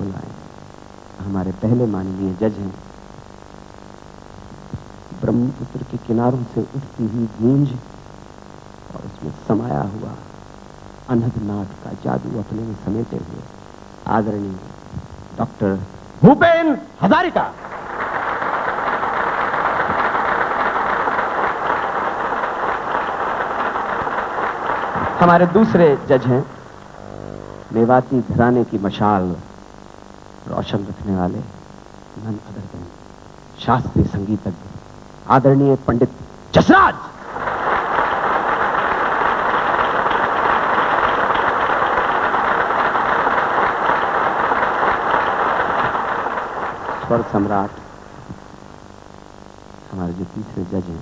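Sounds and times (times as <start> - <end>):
audience applauding: 17.5 - 27.8, 37.2 - 48.0.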